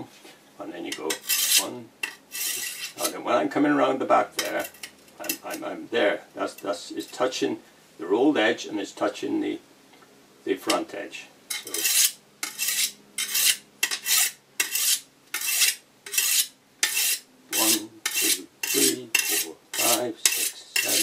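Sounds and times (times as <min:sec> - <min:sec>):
sharpening stone scraping a blade: 0:01.0 - 0:03.1, 0:11.5 - 0:21.0.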